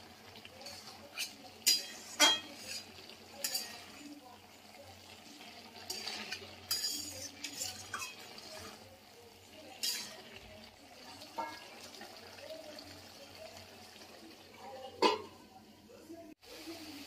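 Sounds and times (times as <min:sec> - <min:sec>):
metal spatula scraping a wok: 0:00.5 - 0:04.2, 0:05.1 - 0:08.9, 0:09.7 - 0:10.4.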